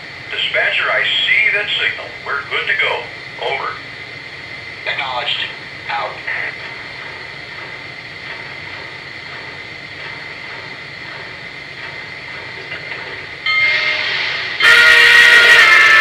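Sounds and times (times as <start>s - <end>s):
model train running on track: 0.0s - 16.0s
steam whistle chord: 13.4s - 16.0s.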